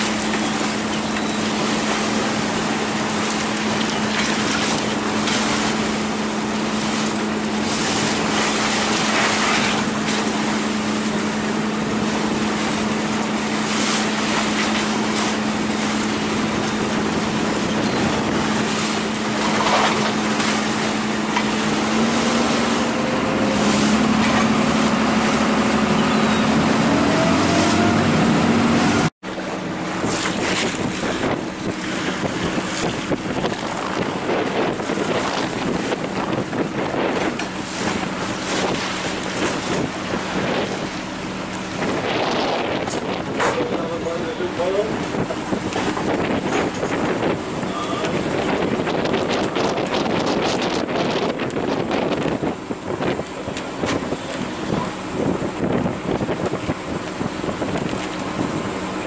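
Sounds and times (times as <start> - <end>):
boat engine droning: 0.0 - 59.0
waves slapping a hull: 0.0 - 59.0
wind noise on microphone: 0.0 - 59.0.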